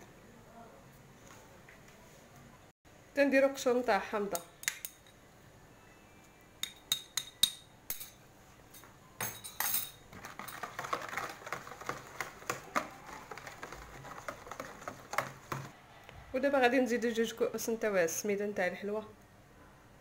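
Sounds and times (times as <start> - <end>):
metal spoon clinking on bowl: 8.8 - 10.0
whisk beating batter in bowl: 10.2 - 15.8.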